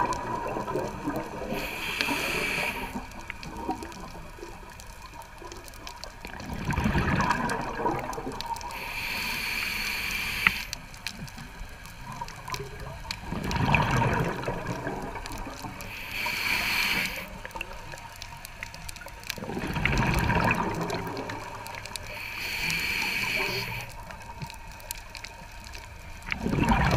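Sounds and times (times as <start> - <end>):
exhaled bubbles gurgling: 0.0 - 26.9
regulator inhalation hiss: 1.5 - 3.2, 8.7 - 11.0, 15.8 - 17.8, 22.0 - 24.1.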